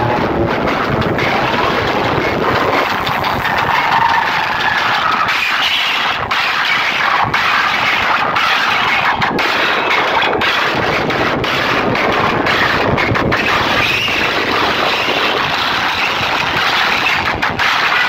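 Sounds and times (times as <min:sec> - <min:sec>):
distorted loudspeaker sound: 0:00.0 - 0:18.0.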